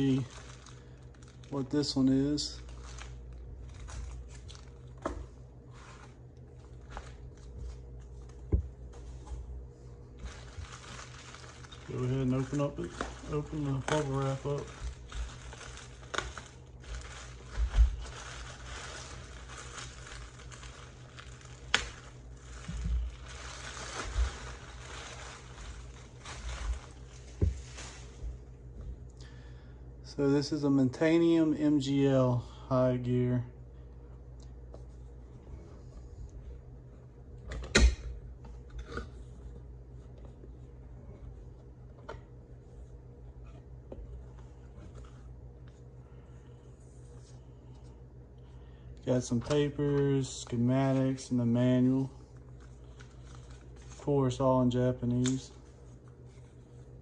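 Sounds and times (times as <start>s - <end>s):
bubble wrap crinkling: 0.0s - 5.0s, 5.6s - 9.2s, 10.0s - 28.5s, 50.3s - 57.0s.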